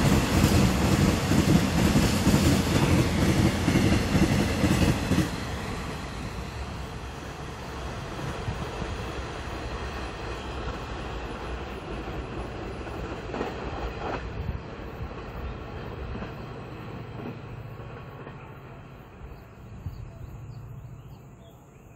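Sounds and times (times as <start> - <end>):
train clanks: 0.0 - 21.4
freight train rumbling on rails: 0.0 - 21.9.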